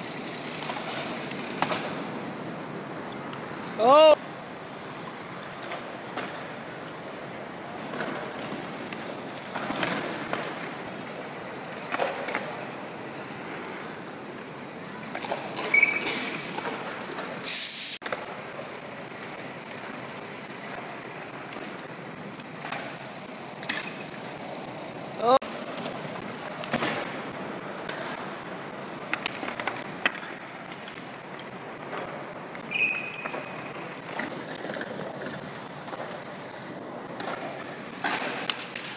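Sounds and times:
skateboard scrapes and clacks: 0:00.0 - 0:02.3, 0:04.8 - 0:38.9
wheels rolling on asphalt: 0:00.0 - 0:38.9
loud brief hiss: 0:17.4 - 0:18.0.

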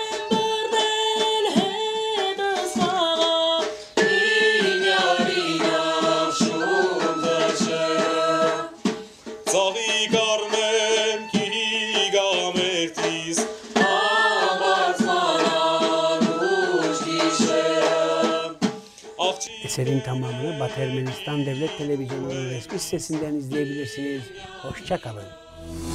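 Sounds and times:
men singing together: 0:04.0 - 0:08.8, 0:09.5 - 0:18.6, 0:19.2 - 0:25.5
low drone: 0:25.4 - 0:25.9.

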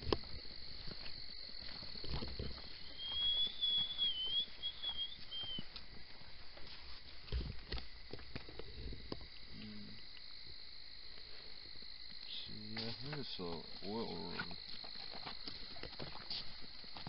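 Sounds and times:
footsteps on dirt road: 0:00.0 - 0:08.6, 0:12.8 - 0:17.0
insects trilling: 0:00.0 - 0:17.0
high wavering whistle: 0:02.8 - 0:05.7.

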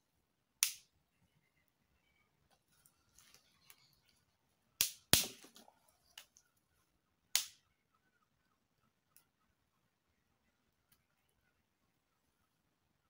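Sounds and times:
sticks cracking: 0:00.6 - 0:00.9, 0:04.8 - 0:06.4, 0:07.4 - 0:07.6
faint rustling: 0:02.0 - 0:04.4.

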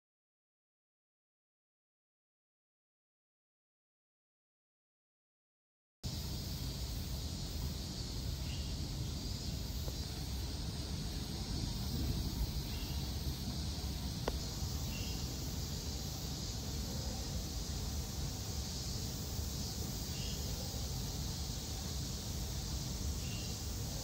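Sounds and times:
faint high hiss: 0:06.0 - 0:24.0.

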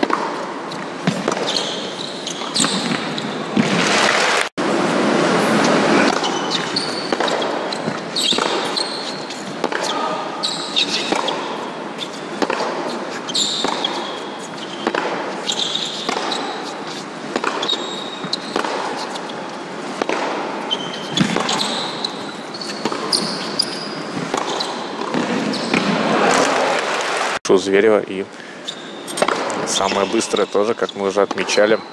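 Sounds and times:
ball bouncing: 0:00.0 - 0:04.0, 0:06.0 - 0:10.0, 0:12.4 - 0:19.3, 0:20.0 - 0:26.0
racket striking ball: 0:00.0 - 0:04.3, 0:05.5 - 0:26.6, 0:29.1 - 0:29.6
shoes squeaking on court: 0:00.0 - 0:04.4, 0:05.4 - 0:26.6, 0:28.6 - 0:31.9.

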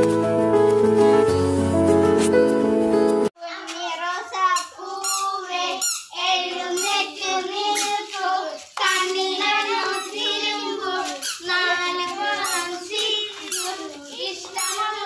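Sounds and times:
children singing: 0:03.9 - 0:15.0.

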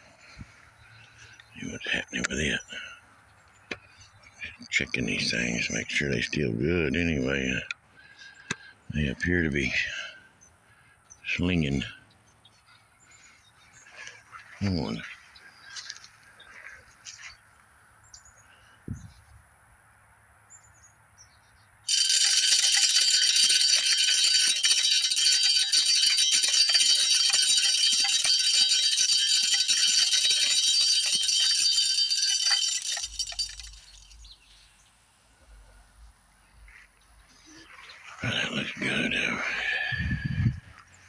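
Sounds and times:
rattle of kernels: 0:21.9 - 0:34.3.

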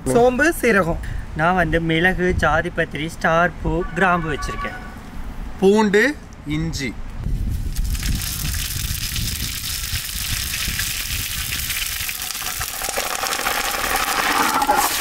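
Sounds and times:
hot oil sizzling: 0:07.7 - 0:15.0.

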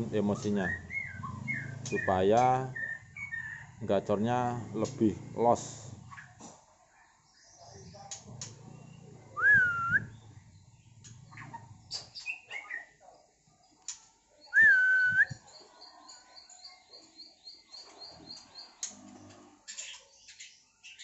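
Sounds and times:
bird whistled notes: 0:09.4 - 0:10.2, 0:14.5 - 0:15.4
bird soft chirps and clicks: 0:13.6 - 0:21.0.

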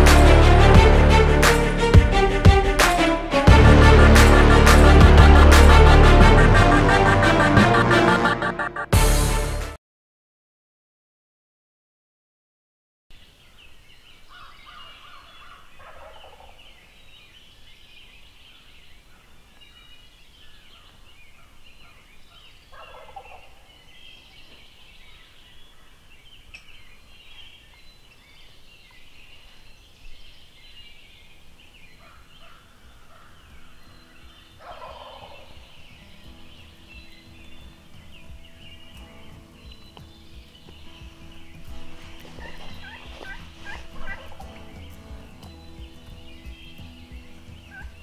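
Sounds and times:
turkey gobbling: 0:07.5 - 0:08.9, 0:14.3 - 0:16.6, 0:22.7 - 0:23.6, 0:34.6 - 0:35.6, 0:42.4 - 0:44.4
small birds twittering: 0:13.1 - 0:48.0.

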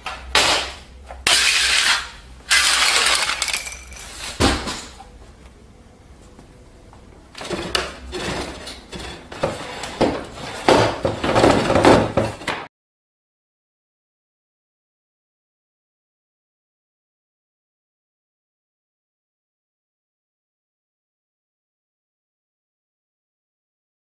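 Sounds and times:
objects clattering and clinking: 0:01.4 - 0:05.1, 0:07.4 - 0:12.7.

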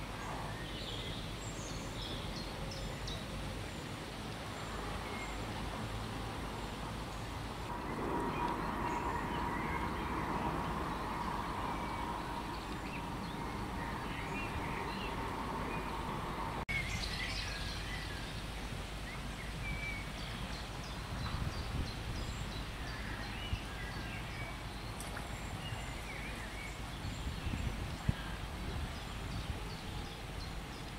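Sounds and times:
small birds chirping: 0:07.1 - 0:30.9
steady hum-like tone: 0:07.6 - 0:16.7
low rumble: 0:07.7 - 0:16.7.

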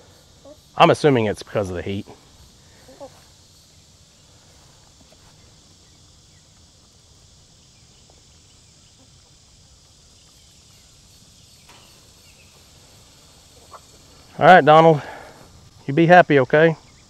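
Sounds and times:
steady high hiss: 0:00.0 - 0:17.0
chickens clucking: 0:02.3 - 0:03.4, 0:04.9 - 0:15.2.

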